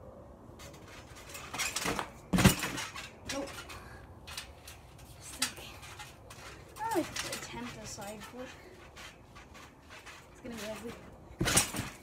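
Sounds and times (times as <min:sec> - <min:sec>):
springs and frame rattling: 0:00.5 - 0:12.0
feet thumping on trampoline mat: 0:01.5 - 0:03.6.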